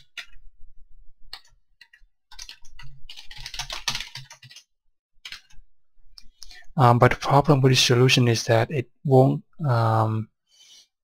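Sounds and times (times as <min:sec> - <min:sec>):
typing on a computer keyboard: 0:01.3 - 0:05.6.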